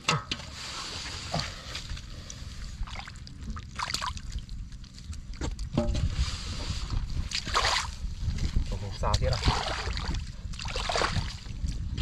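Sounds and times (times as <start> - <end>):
steady low rumble: 0.4 - 12.0
muddy water sloshing: 0.6 - 12.0
water splashes: 2.4 - 5.7, 7.3 - 8.0, 9.1 - 11.8.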